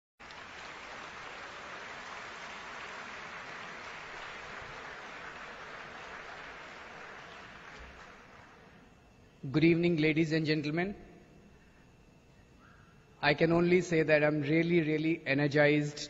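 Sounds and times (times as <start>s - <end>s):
audience applauding: 0.2s - 8.6s.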